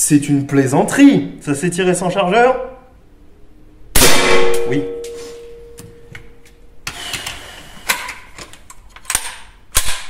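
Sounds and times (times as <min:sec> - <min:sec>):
metallic ringing tone: 0:04.6 - 0:06.2.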